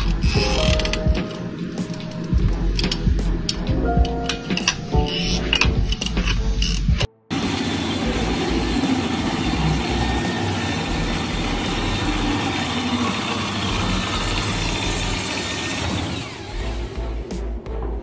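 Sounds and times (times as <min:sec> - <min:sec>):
blade shaving wooden rod: 0:00.0 - 0:03.7, 0:04.5 - 0:17.5
electric drill motor running: 0:07.3 - 0:17.2.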